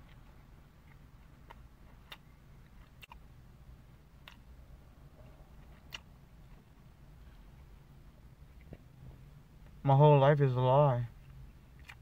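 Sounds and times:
faint crunchy chewing: 0.0s - 3.3s, 5.1s - 7.7s
low steady hum: 0.0s - 12.0s.

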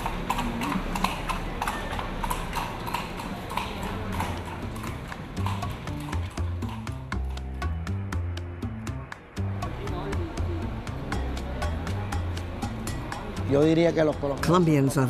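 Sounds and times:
horse hooves clip-clopping on pavement: 0.0s - 10.4s
music with bass notes: 4.8s - 14.6s.

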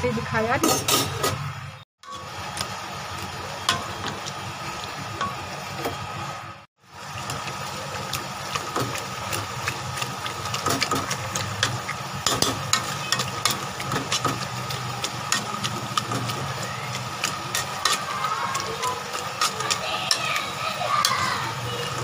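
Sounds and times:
food bubbling: 2.0s - 22.0s
metal spoon scraping a pot: 10.6s - 22.0s.

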